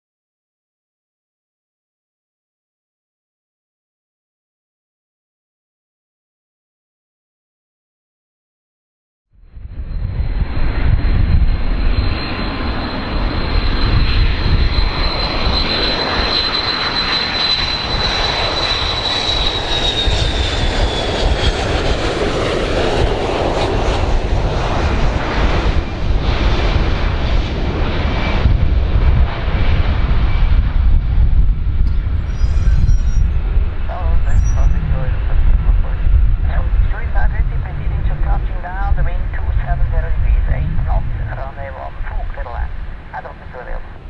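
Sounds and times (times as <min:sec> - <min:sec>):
jet engines running loud: 0:09.5 - 0:44.0
high whine sliding down: 0:31.4 - 0:36.2.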